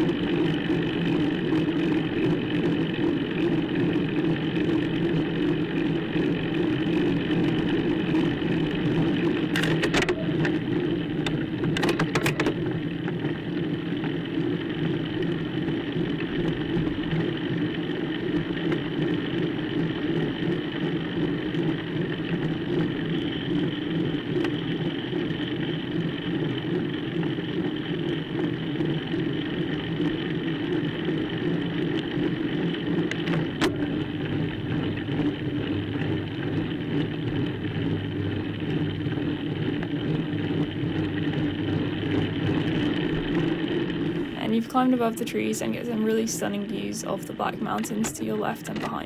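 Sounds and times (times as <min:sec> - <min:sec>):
bike whir and road noise: 0:00.0 - 0:49.0.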